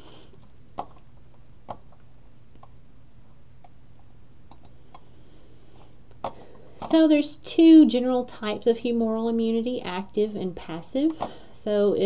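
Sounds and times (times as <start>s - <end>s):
low steady hum: 0.0s - 12.0s
computer mouse clicks: 4.5s - 5.1s.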